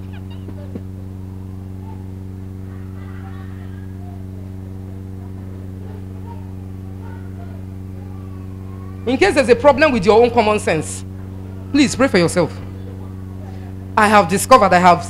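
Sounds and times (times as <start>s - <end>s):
faint voices murmuring: 0.0s - 9.2s, 11.0s - 11.9s, 12.5s - 14.0s
electrical mains hum: 0.0s - 15.0s.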